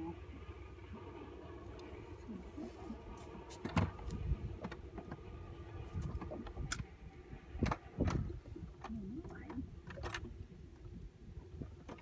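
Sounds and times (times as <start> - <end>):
steady low hum: 0.0 - 12.0
knocks and clicks in a boat: 3.5 - 12.0.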